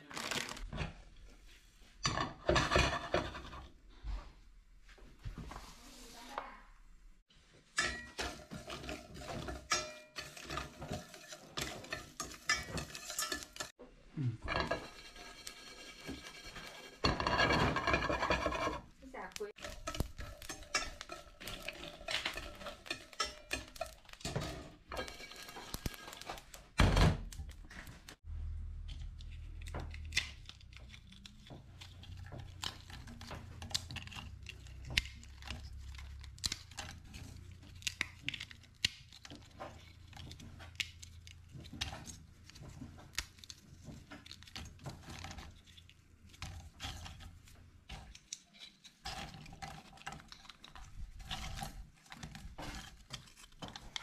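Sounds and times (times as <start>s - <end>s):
spices rattling in metal pan: 7.7s - 13.8s, 14.5s - 26.6s.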